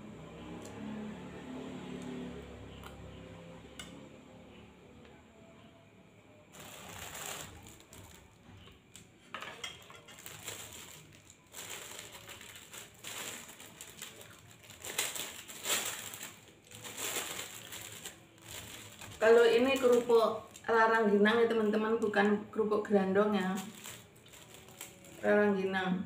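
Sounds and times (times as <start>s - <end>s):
rice cracker breaking: 9.6s - 20.6s, 23.6s - 25.2s.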